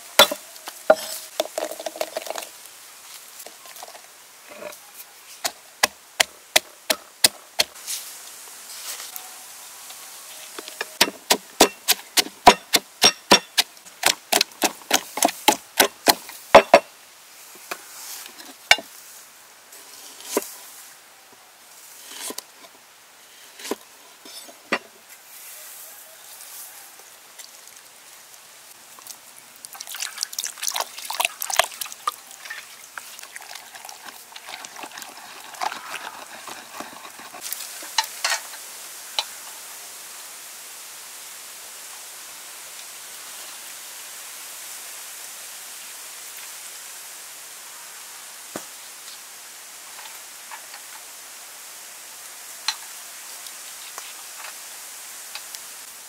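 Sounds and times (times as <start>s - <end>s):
knife chopping on wooden board: 11.0s - 16.8s
pestle knocking in mortar: 11.0s - 16.8s.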